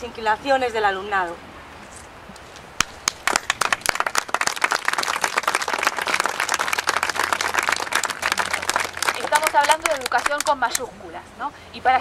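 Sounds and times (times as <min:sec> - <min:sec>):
crowd applauding: 0:03.0 - 0:10.6.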